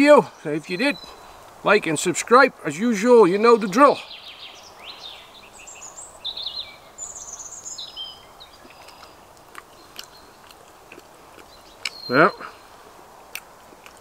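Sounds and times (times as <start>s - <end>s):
faint outdoor hiss: 0.0s - 14.0s
small birds chirping: 0.0s - 14.0s.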